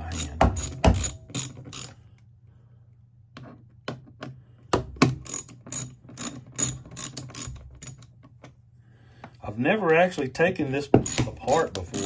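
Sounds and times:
socket ratchet clicking: 0.0 - 1.9, 5.2 - 8.1.

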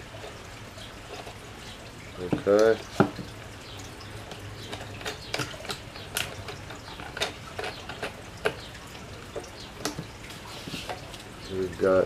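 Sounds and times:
plastic parts clicking and tapping: 4.2 - 8.7.

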